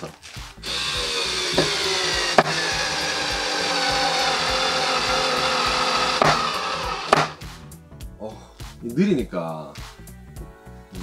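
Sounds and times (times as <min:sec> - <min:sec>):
cordless screwdriver whining: 0:00.6 - 0:07.4.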